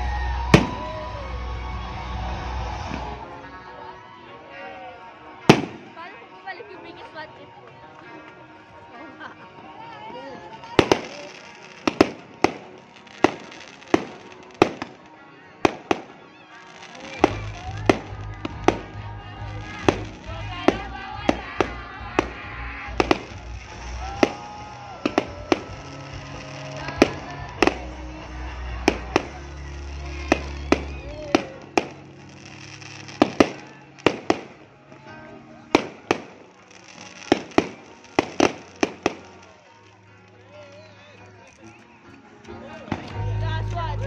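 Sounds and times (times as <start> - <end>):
fireworks bursting: 0.0 - 3.3, 5.4 - 6.1, 10.6 - 41.0.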